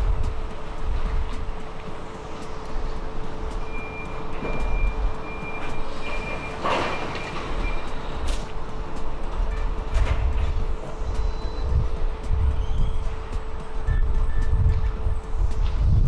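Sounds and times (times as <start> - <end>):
conveyor machine hum and belt rumble: 0.0 - 16.0
high thin beeps: 3.6 - 8.0.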